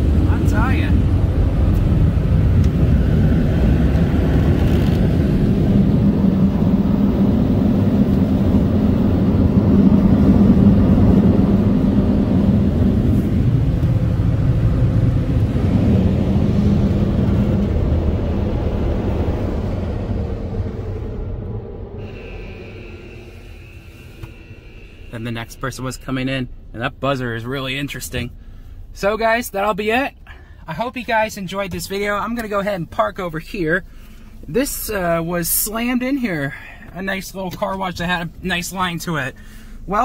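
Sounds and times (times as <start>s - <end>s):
car-wash dryers roaring: 0.0s - 29.7s.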